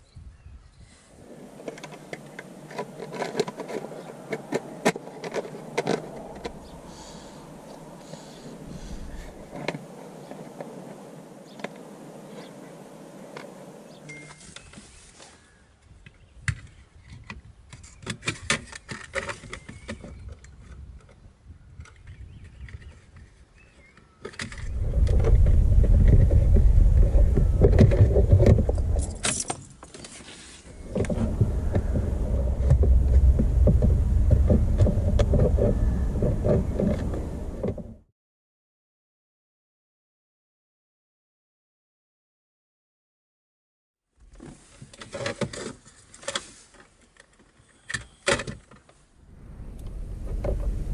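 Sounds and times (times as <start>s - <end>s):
loud low rumble: 24.7s - 29.1s, 30.8s - 38.1s, 49.2s - 50.9s.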